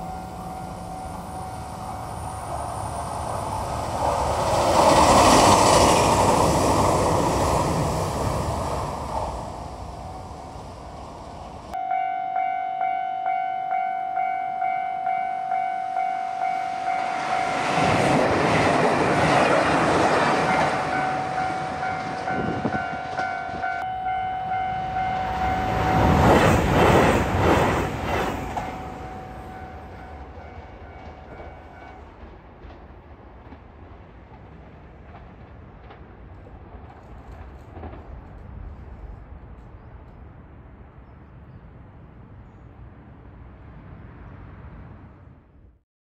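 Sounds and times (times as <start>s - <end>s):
level crossing bell ringing: 11.8s - 17.8s, 20.5s - 26.0s
train wheels clacking over rail joints: 31.0s - 38.8s.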